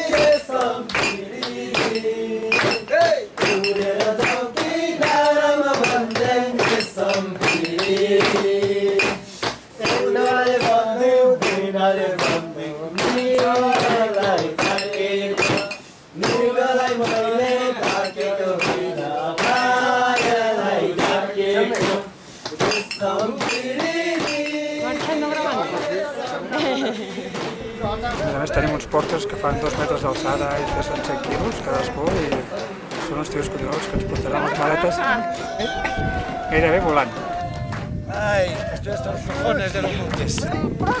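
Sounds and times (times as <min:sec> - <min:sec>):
clinking struck metal beat: 0:00.1 - 0:04.4, 0:05.0 - 0:09.2, 0:13.0 - 0:20.4, 0:22.6 - 0:25.9.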